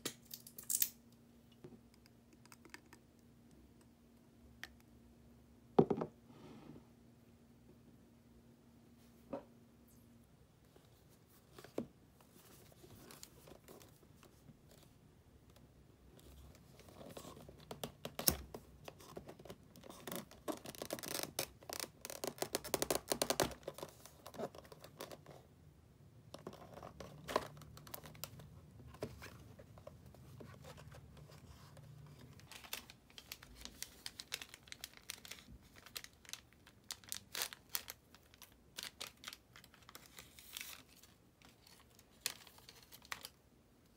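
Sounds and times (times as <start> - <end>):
teabag sachets rustling: 32.2 - 43.4.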